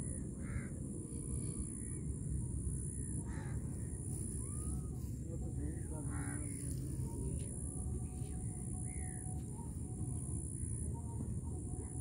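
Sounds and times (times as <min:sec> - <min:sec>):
bird calls: 0:02.8 - 0:12.0.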